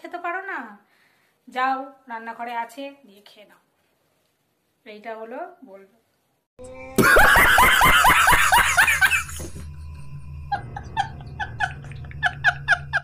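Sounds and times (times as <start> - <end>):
person laughing hard: 7.0 - 9.6, 10.5 - 13.0
low hum: 7.0 - 13.0.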